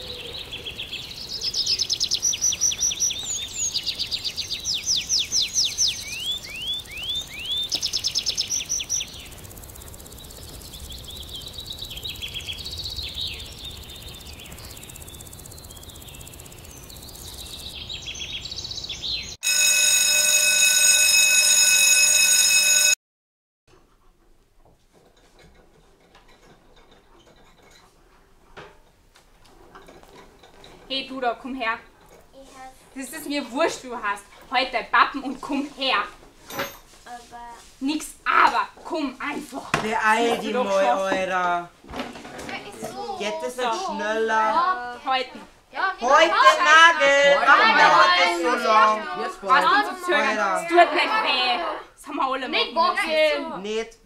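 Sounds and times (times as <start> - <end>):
songbirds trilling and chirping: 0.0 - 19.4.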